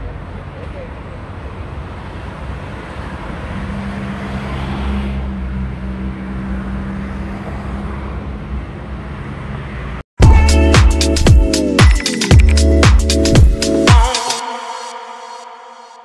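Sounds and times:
vehicles passing: 0.0 - 10.1.

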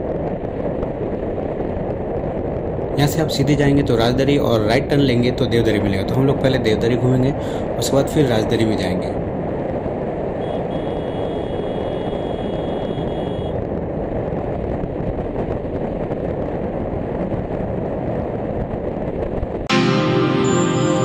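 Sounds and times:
wind on microphone: 0.0 - 19.7.

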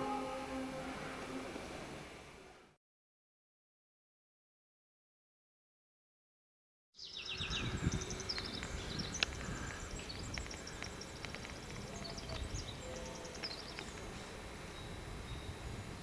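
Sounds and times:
small birds chirping: 7.0 - 15.8.

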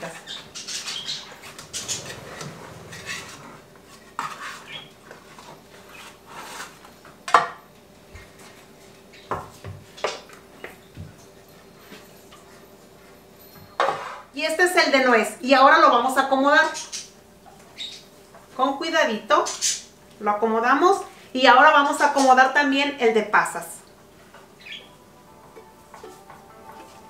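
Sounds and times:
spatula scraping metal pan: 1.2 - 4.9.

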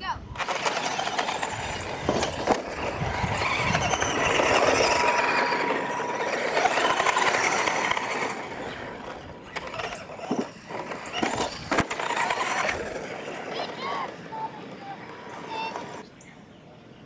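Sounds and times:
toy truck motors whining: 0.3 - 16.1
tyres on dirt: 0.3 - 16.6
trucks knocking obstacles: 0.4 - 13.7.

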